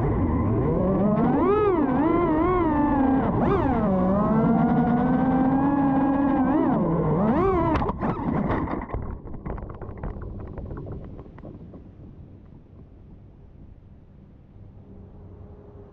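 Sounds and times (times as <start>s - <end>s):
drone motors whining: 0.0s - 8.1s.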